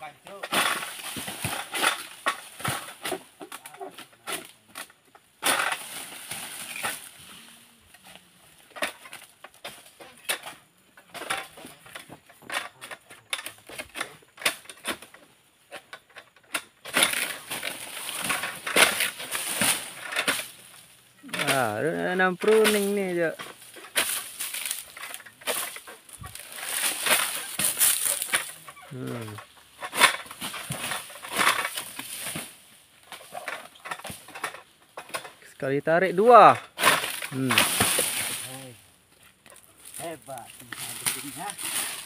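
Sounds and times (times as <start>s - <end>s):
dry fronds rustling and crashing down: 0.0s - 42.0s
blade hacking at palm fronds: 0.3s - 7.1s, 16.6s - 35.3s, 36.2s - 38.8s, 39.8s - 42.0s.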